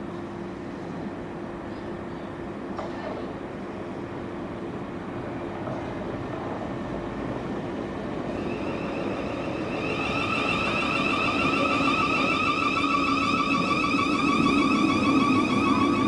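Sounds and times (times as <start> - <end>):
train wheels rumbling on rail: 0.0 - 16.0
high whine of stacked tones: 8.0 - 16.0.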